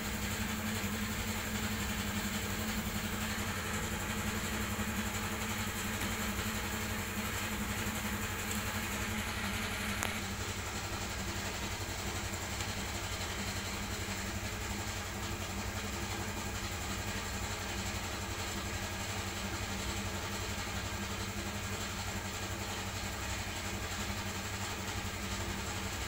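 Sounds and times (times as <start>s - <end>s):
low mechanical drone: 0.0s - 14.7s.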